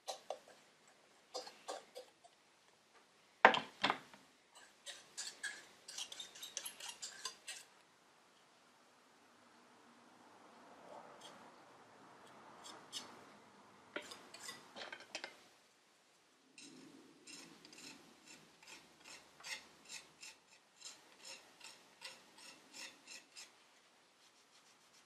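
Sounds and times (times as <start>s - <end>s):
putty knife scraping: 0.0s - 0.6s, 1.3s - 2.2s, 4.6s - 7.7s, 14.0s - 15.3s, 16.6s - 23.6s.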